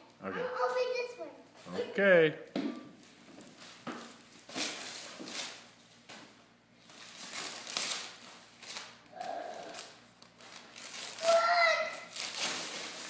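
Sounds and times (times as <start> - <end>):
wrapping paper tearing and crinkling: 4.2 - 5.7, 6.8 - 13.0.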